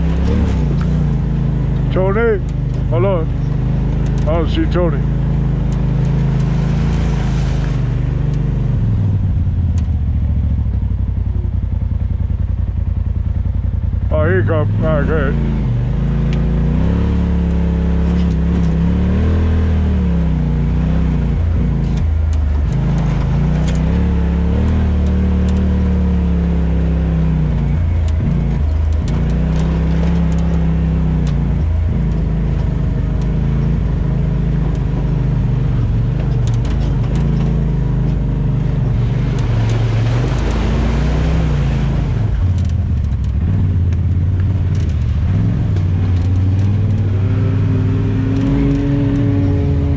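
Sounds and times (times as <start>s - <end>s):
off-road vehicle engine revving: 0.0s - 49.9s.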